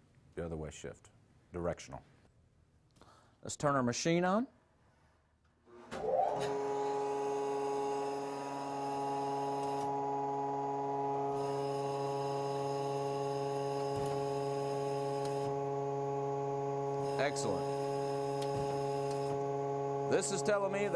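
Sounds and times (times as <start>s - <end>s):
motor whine and hum: 5.8s - 20.9s.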